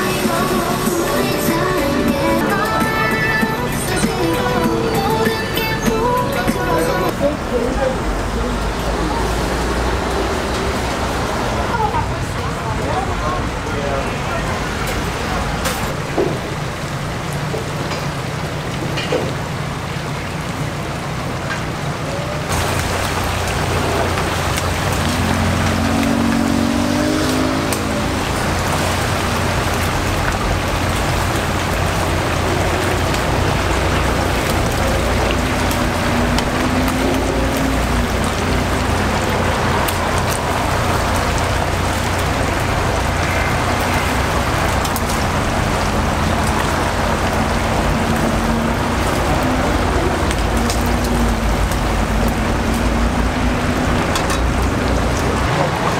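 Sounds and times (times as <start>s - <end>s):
oil bubbling and sizzling: 14.8s - 55.9s.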